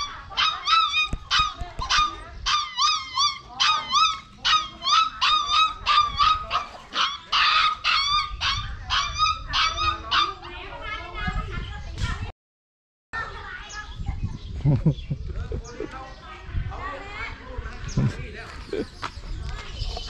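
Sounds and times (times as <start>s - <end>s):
dog whining yelps: 0.0s - 10.5s.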